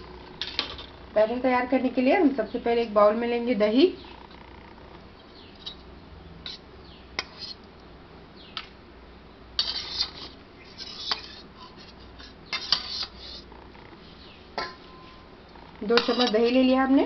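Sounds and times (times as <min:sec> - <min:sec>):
metal spoon scraping a steel bowl: 0:06.4 - 0:06.6, 0:07.2 - 0:07.6, 0:09.6 - 0:13.5, 0:14.6 - 0:17.0.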